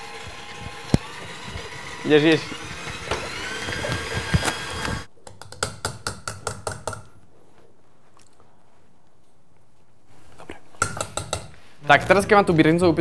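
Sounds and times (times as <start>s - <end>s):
stand mixer whipping: 0.0s - 5.1s
whisk tapping steel bowl: 5.4s - 7.1s, 10.8s - 11.6s.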